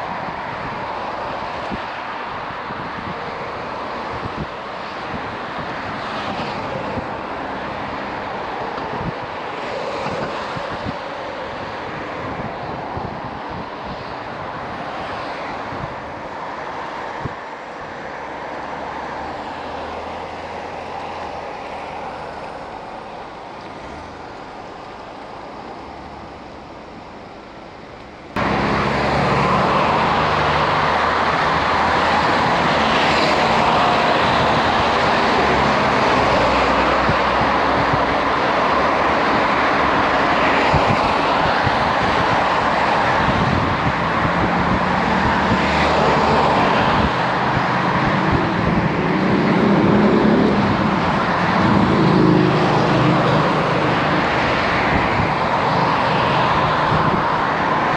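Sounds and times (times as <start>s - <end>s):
engine rumble: 0.0s - 57.9s
passing vehicles: 0.0s - 57.9s.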